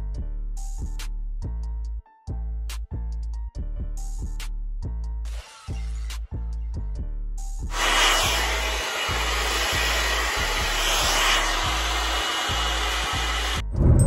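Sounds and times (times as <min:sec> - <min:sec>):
hair dryer blowing: 0:07.7 - 0:13.7.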